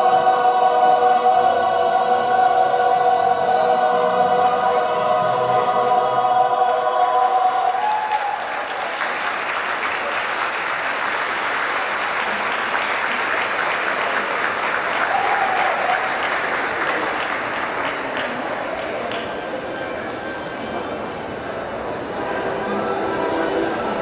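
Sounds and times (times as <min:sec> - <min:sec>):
choir holding chord: 0:00.0 - 0:07.9
crowd applauding: 0:07.2 - 0:20.2.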